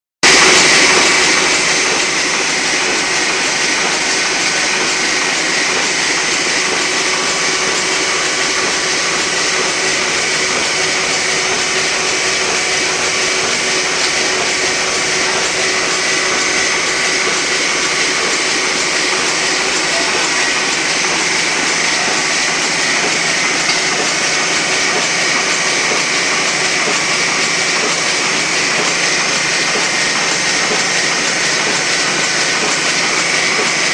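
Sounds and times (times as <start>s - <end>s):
printing press running: 0.2s - 33.9s.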